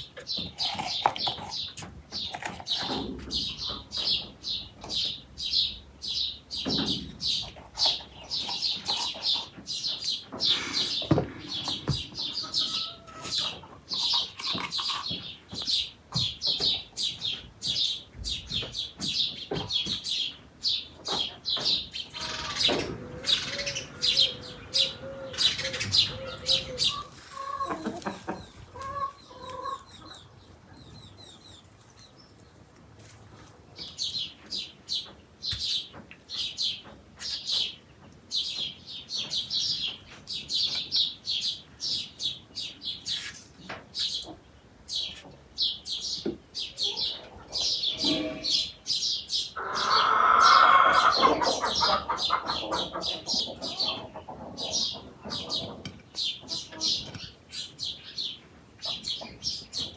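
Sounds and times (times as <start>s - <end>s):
songbirds chirping: 0.0s - 59.9s
hen clucking: 6.6s - 20.3s, 21.0s - 32.4s, 46.1s - 59.9s.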